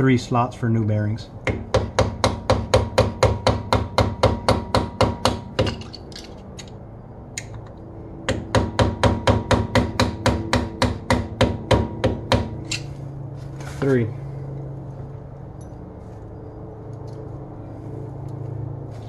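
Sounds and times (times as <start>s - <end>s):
hammer tapping metal punch: 1.5s - 6.0s.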